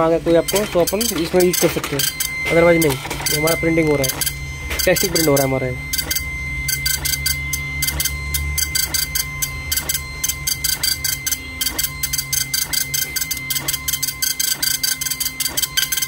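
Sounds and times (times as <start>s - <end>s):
dot-matrix printer printing: 0.0s - 16.0s
paper stepping in printer: 0.2s - 5.5s, 8.7s - 16.0s
low hum: 1.7s - 14.9s.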